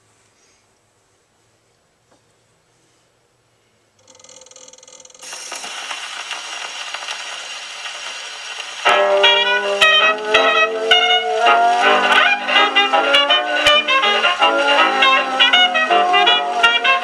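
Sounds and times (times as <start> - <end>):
record surface hiss and crackles: 0.0 - 17.0
jazz band playing: 8.8 - 17.0.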